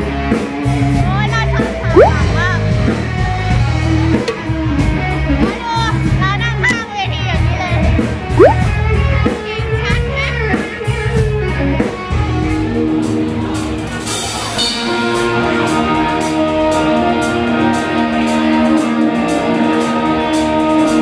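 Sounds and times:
bass guitar: 0.0 - 13.7.

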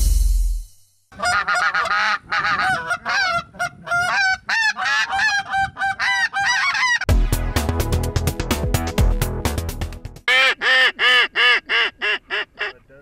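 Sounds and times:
goose honks and clucks: 1.1 - 7.1, 10.3 - 13.0.

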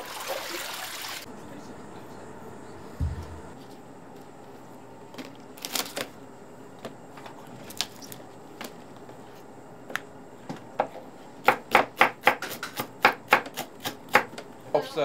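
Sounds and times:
knife chopping on wooden board: 11.4 - 14.4.

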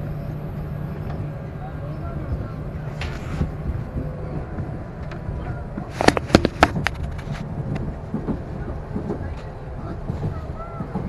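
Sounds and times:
train running rumble: 0.0 - 11.0
sharp clicks and knocks: 3.0 - 11.0.

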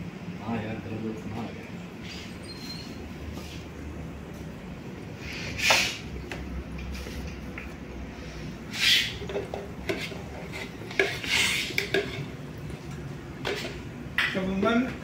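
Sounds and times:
low steady hum: 0.0 - 15.0
metal kitchenware clinking and scraping: 9.2 - 12.3.

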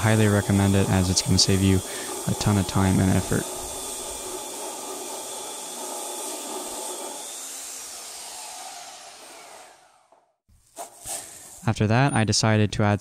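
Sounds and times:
belt sander running: 0.0 - 10.3.

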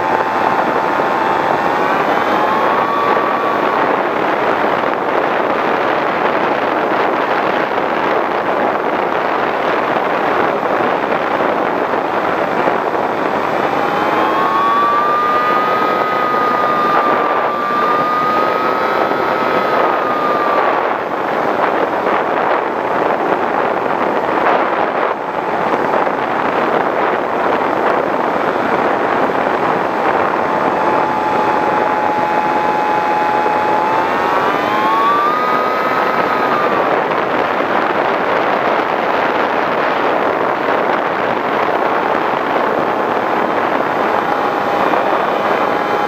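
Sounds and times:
airflow and propeller noise: 0.0 - 46.0
electric motor whine: 0.0 - 46.0.

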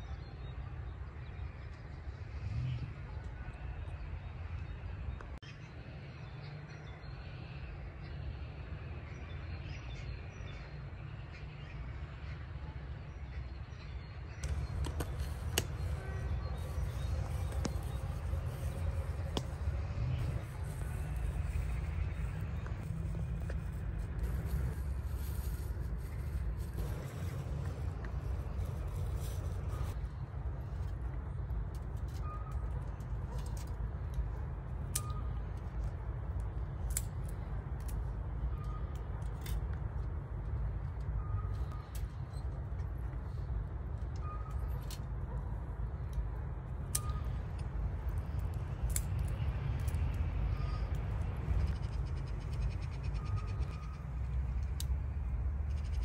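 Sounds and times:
low rumble: 14.3 - 37.0
sharp crackling pops: 14.4 - 40.6
campfire burning: 14.4 - 52.4.

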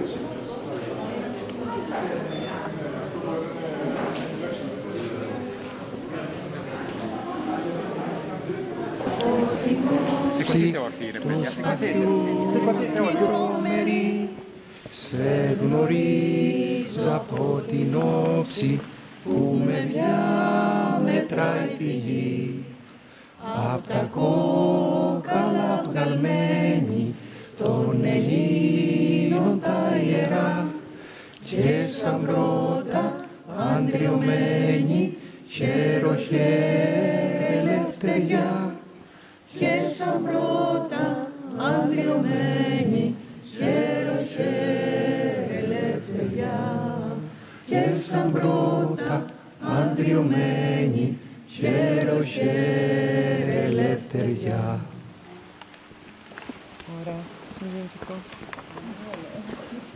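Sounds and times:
group singing unaccompanied: 7.3 - 55.2.

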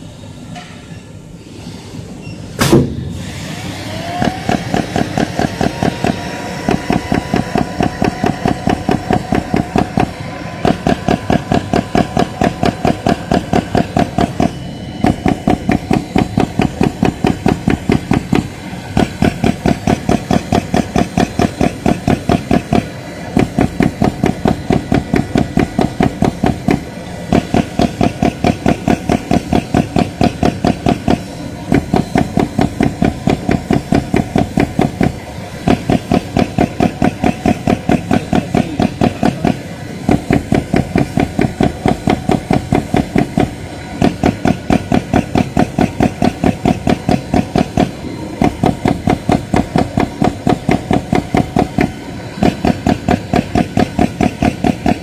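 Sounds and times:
steady machine hum: 0.0 - 55.0
sharp knock: 2.6 - 3.0
machine tool punching rapidly: 4.1 - 55.0.

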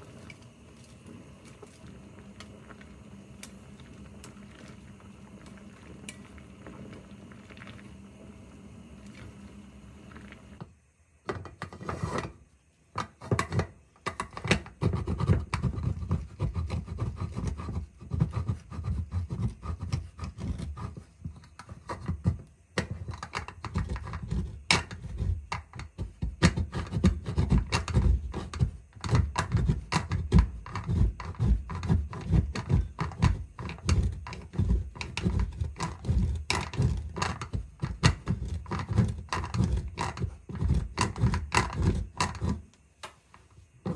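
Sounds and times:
cheese rasping on grater: 14.8 - 42.6.

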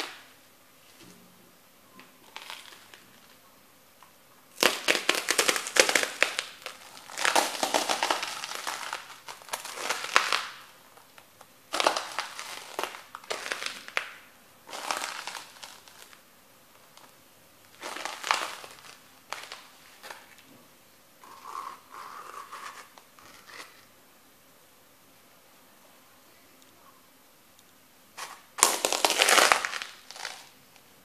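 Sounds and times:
bread sticks crunching underfoot: 2.0 - 3.4, 4.5 - 16.2, 16.8 - 20.5, 28.2 - 30.6.

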